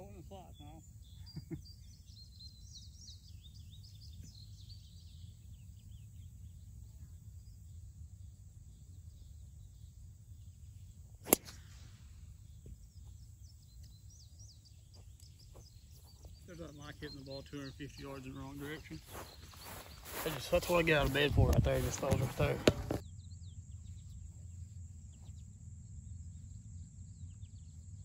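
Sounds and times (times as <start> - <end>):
faint bird chirps: 0.0 - 28.0
golf driver striking ball: 11.2 - 11.8.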